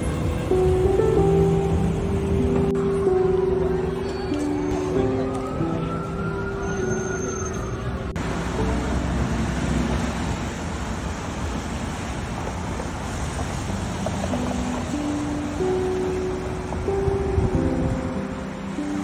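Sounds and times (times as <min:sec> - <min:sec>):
faint music: 0:00.0 - 0:10.1
traffic on a wet street: 0:00.0 - 0:19.0
siren rising and falling: 0:02.7 - 0:08.1.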